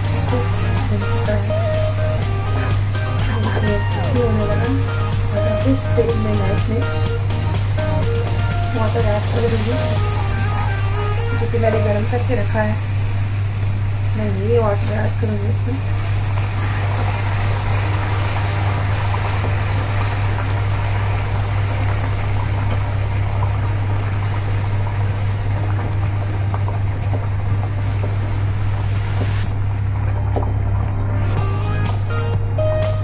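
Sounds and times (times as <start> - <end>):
constant low hum: 0.0 - 32.7
water splashing into frying paste: 15.9 - 29.5.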